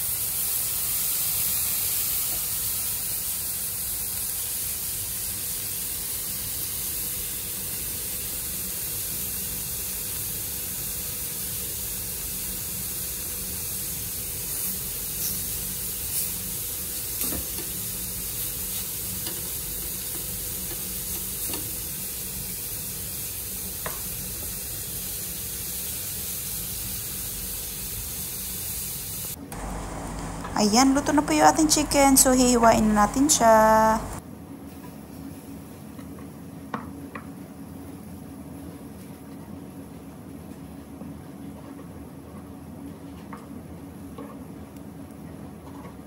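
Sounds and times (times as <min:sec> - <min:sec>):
chicken sizzling in a grill pan: 0:00.0 - 0:32.5.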